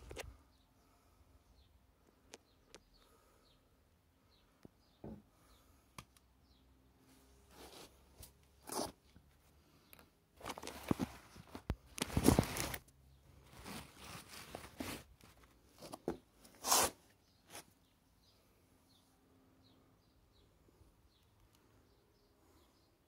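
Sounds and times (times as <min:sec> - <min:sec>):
rustling and scraping handling noise: 0:07.1 - 0:17.9.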